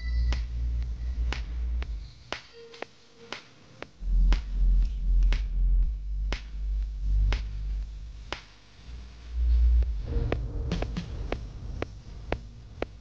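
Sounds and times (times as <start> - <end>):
deep bass line: 0.0 - 2.0, 4.0 - 13.0
finger-snap beat: 0.0 - 8.8.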